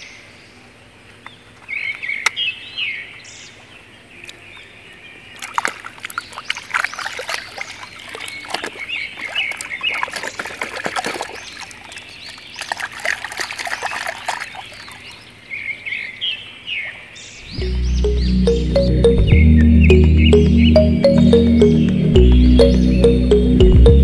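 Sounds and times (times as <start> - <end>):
birds chirping: 4.2 - 24.0
mud splashing and squelching: 5.3 - 15.3.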